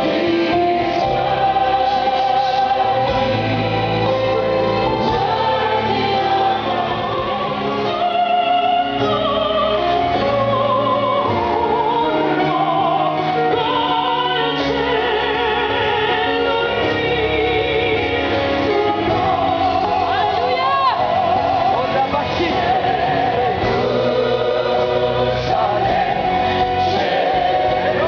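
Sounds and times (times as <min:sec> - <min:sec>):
choir singing with vibrato: 0:00.0 - 0:28.0.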